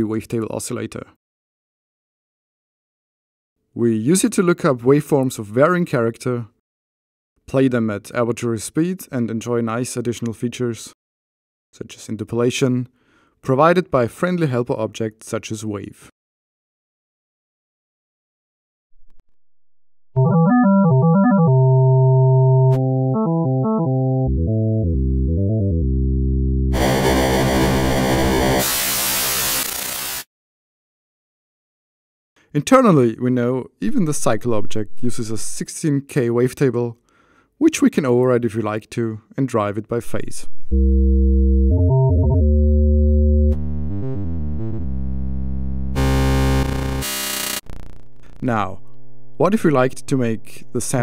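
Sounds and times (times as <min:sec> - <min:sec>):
synthesizer notes: 0:20.2 - 0:28.6, 0:40.6 - 0:51.0.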